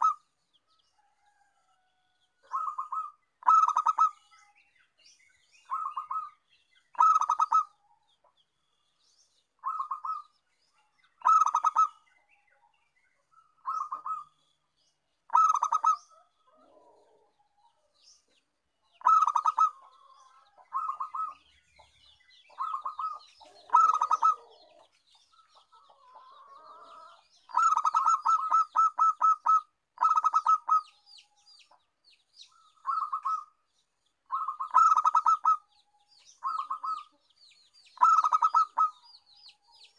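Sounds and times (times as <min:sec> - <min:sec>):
dove cooing: 0:02.4 - 0:04.3, 0:05.7 - 0:06.4, 0:07.0 - 0:07.8, 0:09.6 - 0:10.3, 0:11.2 - 0:12.0, 0:15.3 - 0:17.3, 0:19.0 - 0:21.4, 0:22.5 - 0:24.8, 0:26.2 - 0:30.9, 0:32.8 - 0:33.5, 0:34.3 - 0:35.7, 0:36.4 - 0:37.2, 0:38.0 - 0:39.1.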